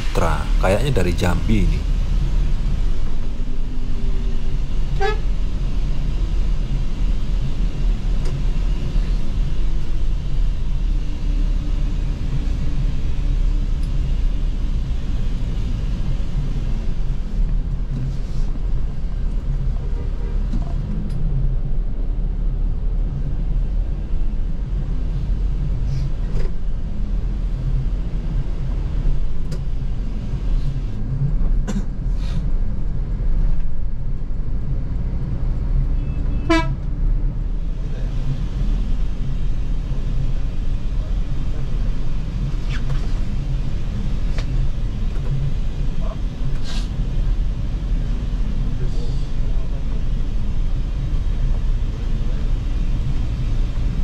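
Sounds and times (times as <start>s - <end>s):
bus engine and road rumble: 0.0s - 54.0s
short horn toots: 36.0s - 36.8s.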